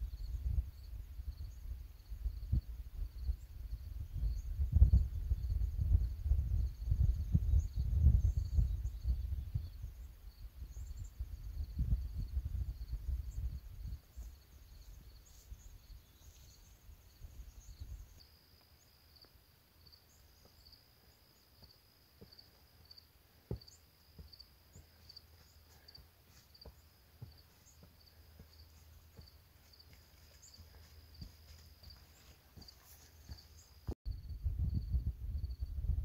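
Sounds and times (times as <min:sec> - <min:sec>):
wind buffeting microphone: 0:00.0 - 0:18.1, 0:34.0 - 0:36.0
insects trilling: 0:06.6 - 0:34.0
footsteps scuffing on trail: 0:23.5 - 0:33.9.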